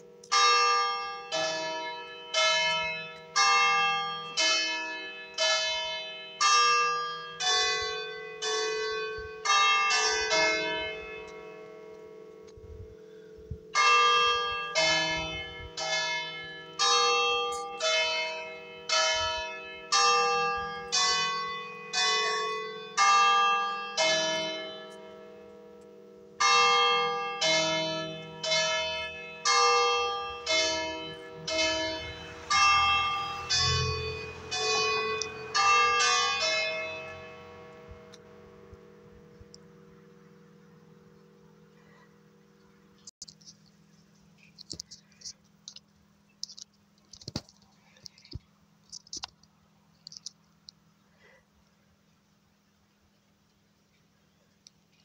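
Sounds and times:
church bells ringing: 0.0 - 42.5.

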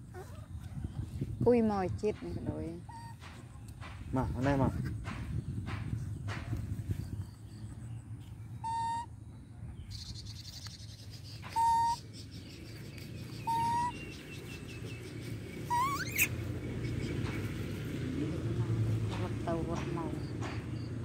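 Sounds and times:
baby monkey squealing: 2.8 - 3.2, 8.6 - 9.1, 11.4 - 12.2, 12.9 - 14.4, 15.5 - 16.6
baby monkey cooing: 2.9 - 3.2, 8.6 - 9.1, 11.4 - 12.1, 13.0 - 14.0, 15.3 - 16.5.

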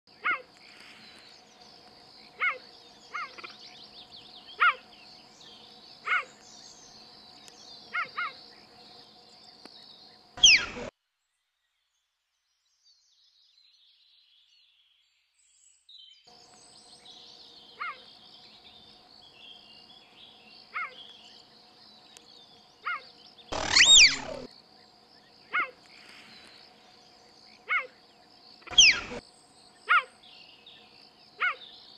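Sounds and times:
high insect drone: 0.1 - 10.9, 16.3 - 31.9
cheetah chirps: 10.4 - 10.9, 22.9 - 24.5, 28.6 - 29.2.

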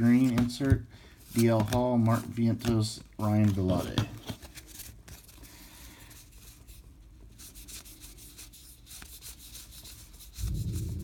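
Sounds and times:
cardboard cards shuffling: 0.0 - 5.5
low rumble: 10.4 - 11.0.

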